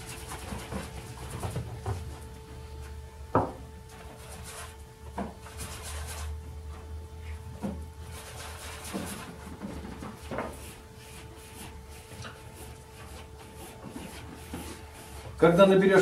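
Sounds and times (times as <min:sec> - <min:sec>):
faint steady hum: 0:00.0 - 0:16.0
brushes knocking and rubbing: 0:07.6 - 0:15.4.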